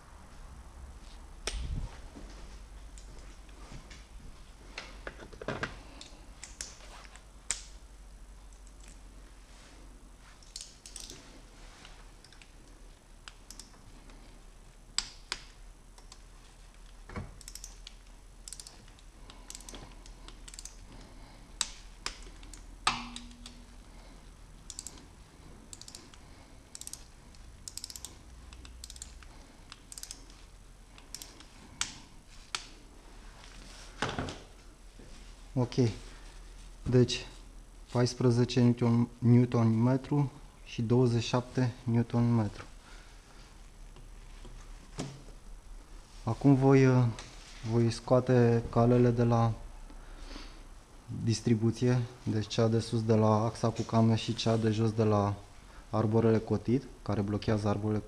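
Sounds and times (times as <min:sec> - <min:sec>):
torque wrench clicks: 0:10.4 - 0:11.2, 0:13.2 - 0:13.8, 0:17.4 - 0:20.8, 0:24.7 - 0:25.0, 0:25.7 - 0:30.3
wrench ratcheting: 0:10.4 - 0:11.2, 0:17.4 - 0:20.8, 0:24.7 - 0:25.0, 0:25.7 - 0:26.1, 0:26.7 - 0:30.3.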